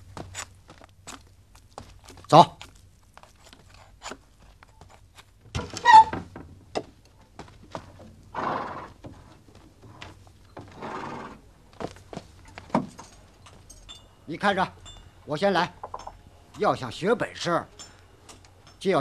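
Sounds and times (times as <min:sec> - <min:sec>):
horse neighing: 0:08.3 - 0:09.0, 0:10.7 - 0:11.4
horse snorting: 0:08.3 - 0:09.0, 0:10.7 - 0:11.4.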